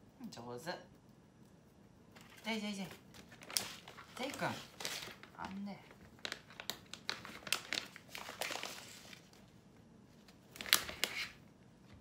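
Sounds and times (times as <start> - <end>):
packet crinkling: 2.2 - 9.5, 10.3 - 11.4.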